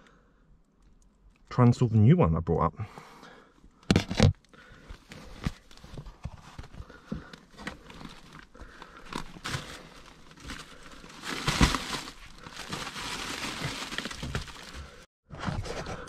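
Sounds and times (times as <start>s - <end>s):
aluminium foil duct crinkling: 3.8s - 15.1s.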